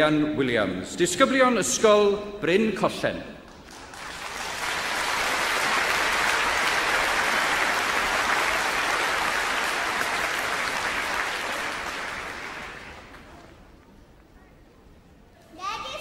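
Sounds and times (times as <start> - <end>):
large audience applauding: 3.5 - 13.7.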